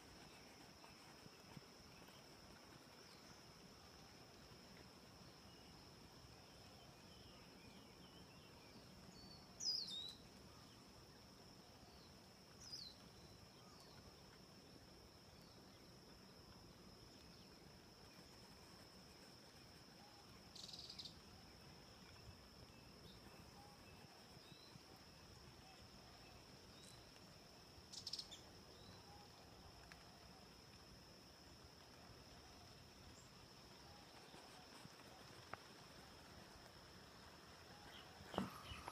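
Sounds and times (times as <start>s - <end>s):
insect drone: 0.0s - 38.9s
bird chirps: 37.9s - 38.9s.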